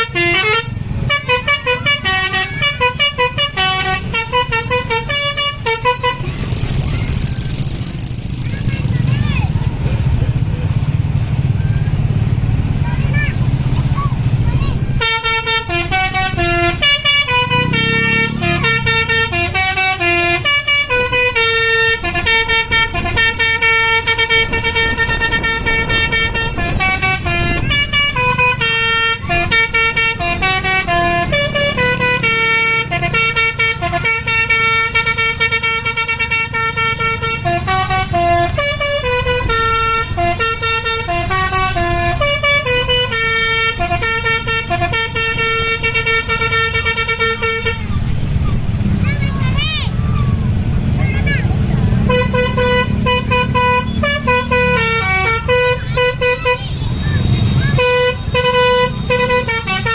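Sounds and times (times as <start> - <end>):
multi-tone air horn melody: 0.0 - 6.4, 14.8 - 48.1, 51.9 - 59.9
bus engine rumble: 0.0 - 59.9.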